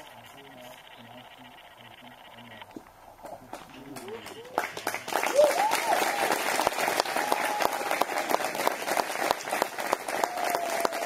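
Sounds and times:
crowd applauding: 3.5 - 11.0
voices cheering: 4.0 - 11.0.

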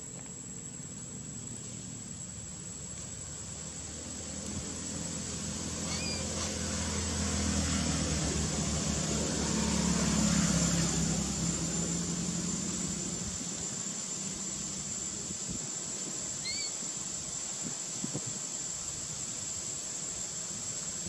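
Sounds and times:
vehicle engine hum: 0.0 - 16.3.

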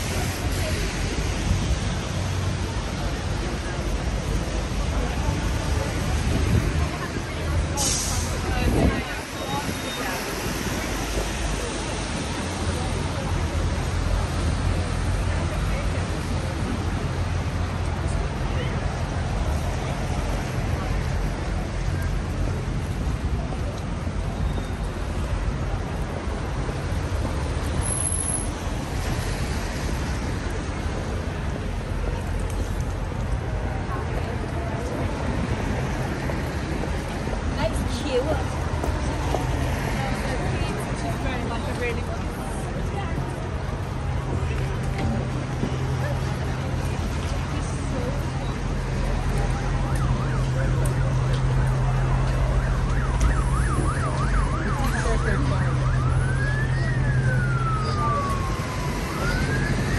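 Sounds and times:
traffic on wet street: 0.0 - 59.9
emergency siren yelping: 49.8 - 59.9.

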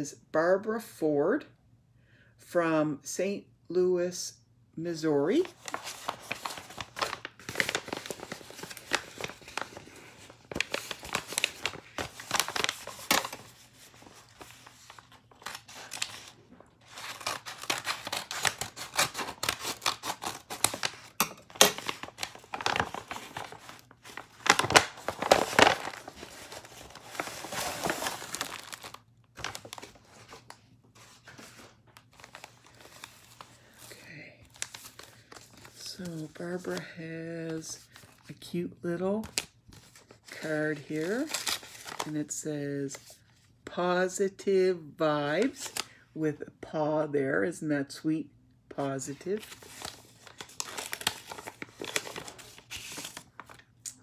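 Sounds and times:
paper packaging crinkling and tearing: 5.3 - 38.4, 39.0 - 42.2, 45.3 - 46.0, 48.8 - 54.0.

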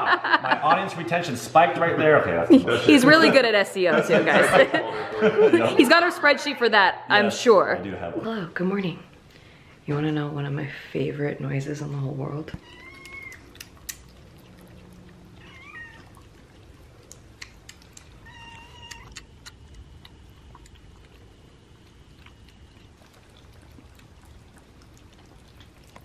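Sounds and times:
kittens meowing: 12.6 - 13.7, 14.8 - 16.5, 17.9 - 19.5
kittens chewing and lapping: 12.6 - 26.0.

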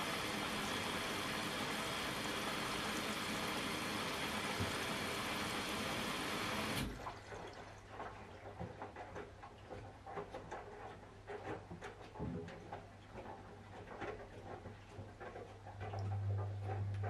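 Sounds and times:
wet laundry sloshing in drum: 0.0 - 17.0
low motor hum: 15.8 - 17.0.

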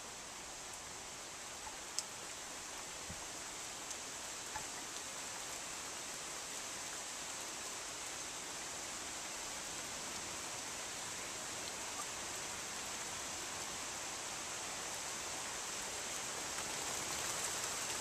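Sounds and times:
steady outdoor hiss: 0.0 - 18.0
faint ticks: 1.6 - 2.4, 3.8 - 5.1.

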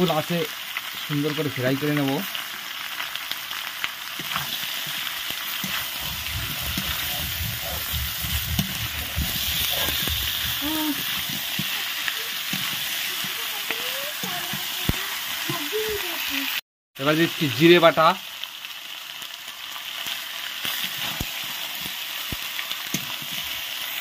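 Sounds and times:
food sizzling in hot oil: 0.0 - 24.0
metal spatula scraping pan: 4.2 - 15.5.

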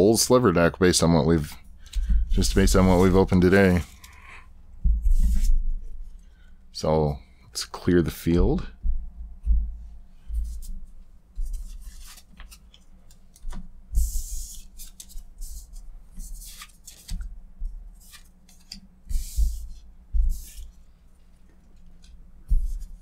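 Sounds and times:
cards swishing on cloth: 5.0 - 5.6.

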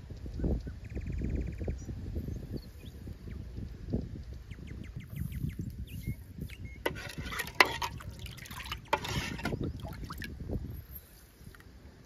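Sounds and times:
ladle knocking against pot: 6.9 - 9.6
milk sloshing in a pot: 6.9 - 10.3.

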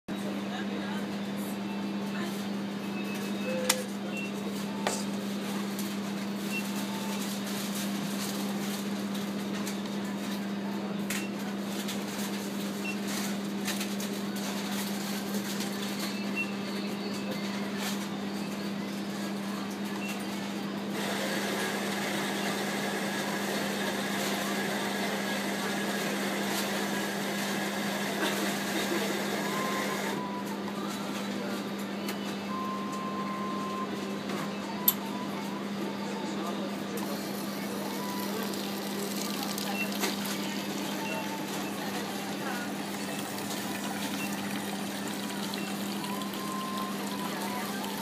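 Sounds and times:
coffee machine grinding and running: 20.8 - 30.8, 36.9 - 48.0.

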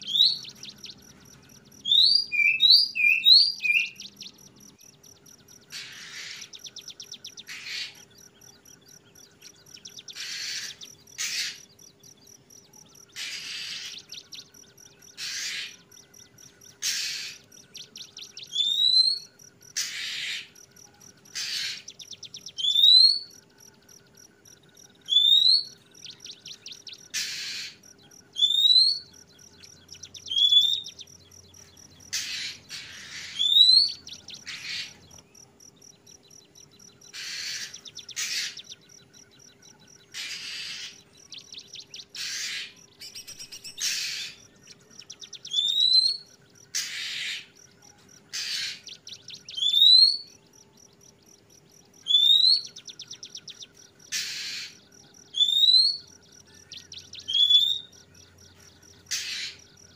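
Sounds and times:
bird harsh raspy calls: 0.0 - 35.4, 36.3 - 50.4, 52.0 - 59.9
bird whistled notes: 1.8 - 4.1, 16.8 - 19.3, 28.4 - 29.1.

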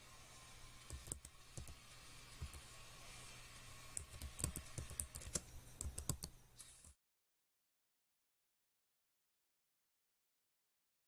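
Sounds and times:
keyboard typing: 0.8 - 1.8, 2.4 - 2.6, 3.9 - 7.0.

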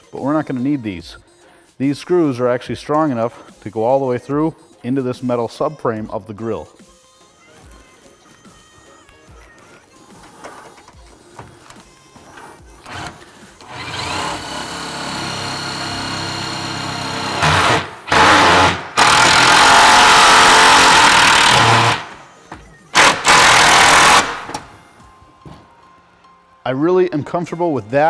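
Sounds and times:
cordless driver driving screws: 12.8 - 22.2, 23.0 - 24.7.

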